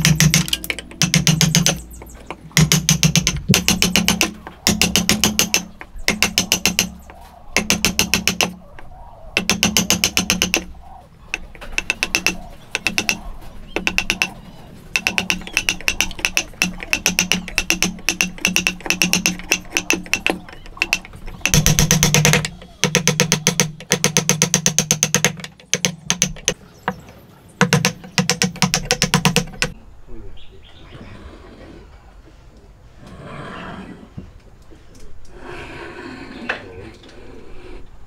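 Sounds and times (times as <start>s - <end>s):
hammer tapping chisel into wood: 0.0s - 8.6s, 9.4s - 10.7s, 11.3s - 14.4s, 15.0s - 27.0s, 27.6s - 29.8s.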